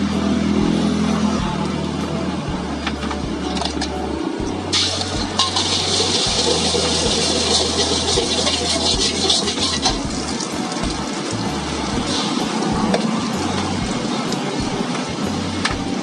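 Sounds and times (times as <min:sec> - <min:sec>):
metal spatula scraping a wok: 0:04.8 - 0:10.4
egg sizzling in hot oil: 0:04.8 - 0:14.8.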